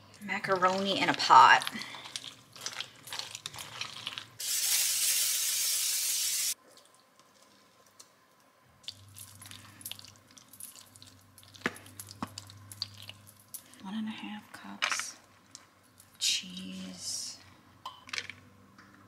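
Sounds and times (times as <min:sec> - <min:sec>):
loud steady hiss: 0:04.4 - 0:06.6.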